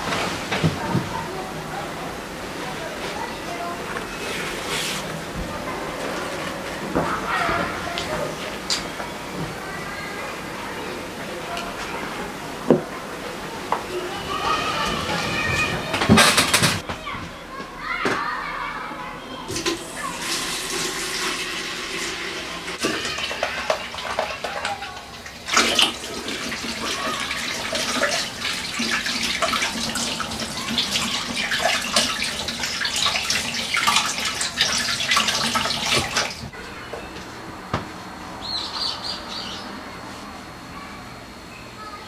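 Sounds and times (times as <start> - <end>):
tap water splashing over hands: 22.8 - 36.5.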